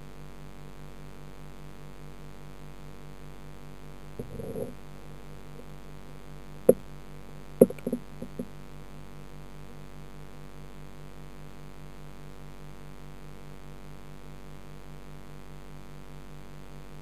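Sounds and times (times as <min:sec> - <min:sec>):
filter pump hum underwater: 0:00.1 - 0:17.0
sharp knocks: 0:07.6 - 0:08.5.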